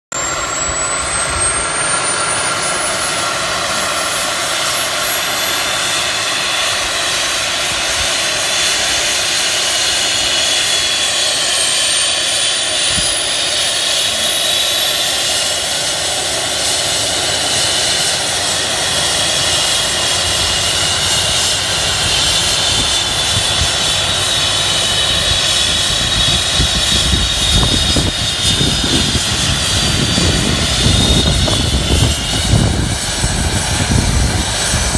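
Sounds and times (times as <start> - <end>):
helicopter turbine whine: 0.1 - 34.9
rotor rushing noise: 0.2 - 34.9
deep rumble: 18.3 - 34.9.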